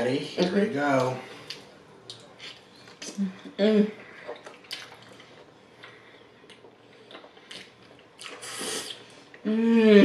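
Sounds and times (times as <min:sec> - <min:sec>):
chewing: 0:04.1 - 0:09.4
slurping noodles: 0:08.2 - 0:09.1.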